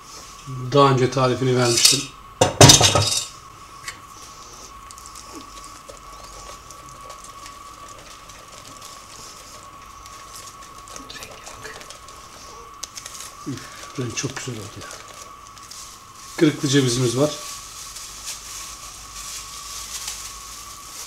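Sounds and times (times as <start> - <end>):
faint high hum: 0.0 - 21.0
whisk beating batter in bowl: 4.9 - 15.8.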